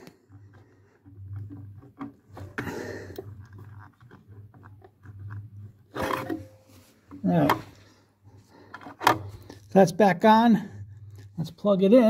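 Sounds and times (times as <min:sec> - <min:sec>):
plastic relay clicking and scraping: 0:00.0 - 0:07.9, 0:08.6 - 0:09.8.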